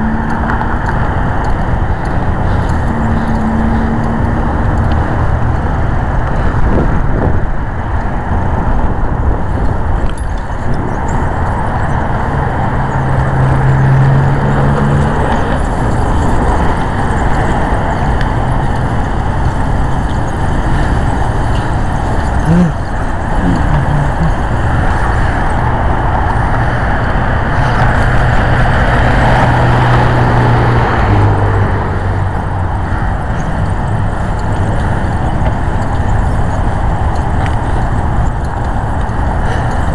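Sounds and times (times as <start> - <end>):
car road and engine noise: 0.0 - 39.9.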